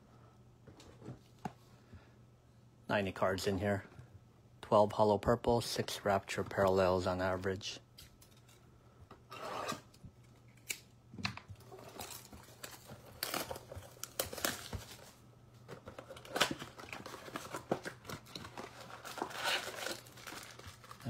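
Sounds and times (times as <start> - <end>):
foil packs crackling: 11.6 - 15.2, 16.0 - 21.0
plastic wrap crinkling: 11.6 - 15.2, 15.8 - 21.0.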